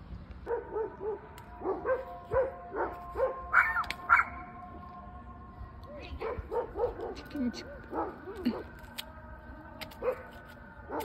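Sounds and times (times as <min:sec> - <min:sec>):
dog yipping: 0:00.5 - 0:04.4.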